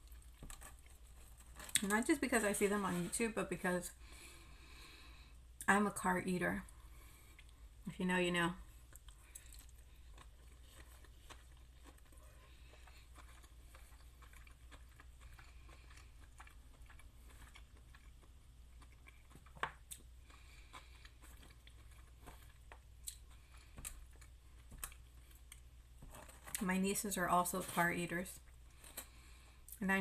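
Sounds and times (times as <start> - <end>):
faint chewing: 0.0 - 3.0, 6.6 - 7.9, 8.6 - 26.7
low steady hum: 0.0 - 30.0.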